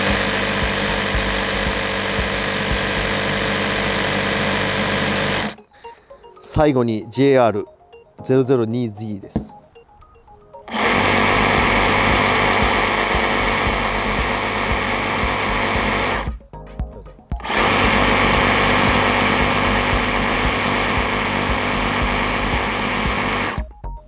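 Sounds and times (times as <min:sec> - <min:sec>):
reciprocating saw motor whine: 0:00.0 - 0:05.6, 0:10.7 - 0:16.4, 0:17.4 - 0:23.7.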